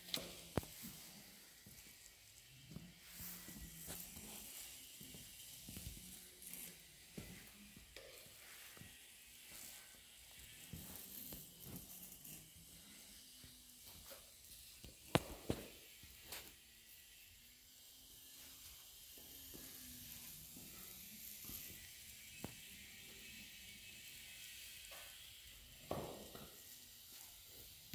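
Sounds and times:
footsteps on tile floor: 0.1 - 12.0, 14.8 - 16.5.

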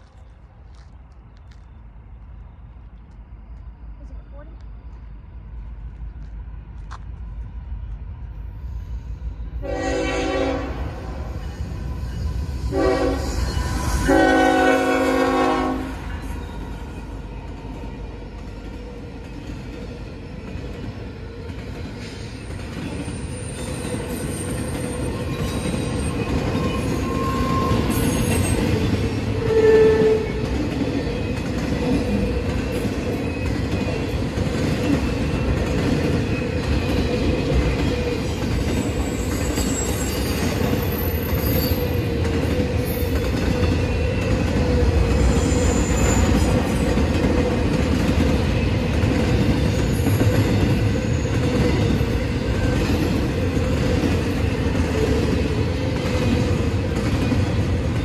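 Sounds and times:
train wheels rumbling on rails: 0.0 - 58.0
train horn blasts: 9.6 - 11.3, 12.7 - 16.1
high wheel squeal: 11.2 - 14.6, 23.0 - 30.4, 38.3 - 42.0, 45.2 - 46.8.

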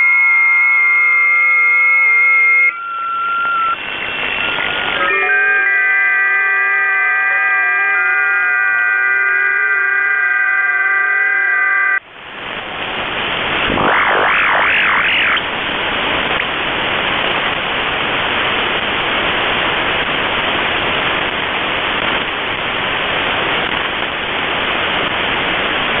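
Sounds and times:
wavering radio whistle: 0.0 - 12.0, 13.6 - 15.5
shortwave radio hiss: 2.8 - 8.4, 11.6 - 26.0.

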